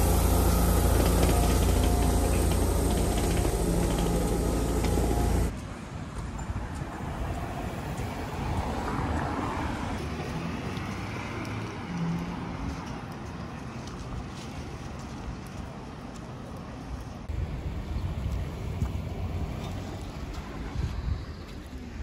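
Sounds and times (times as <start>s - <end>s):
road traffic: 0.0s - 14.3s.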